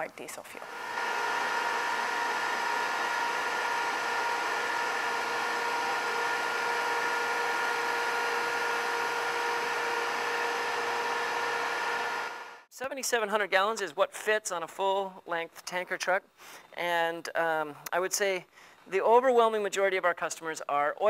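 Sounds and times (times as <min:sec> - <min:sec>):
steady machine whine: 0:00.6 - 0:12.7.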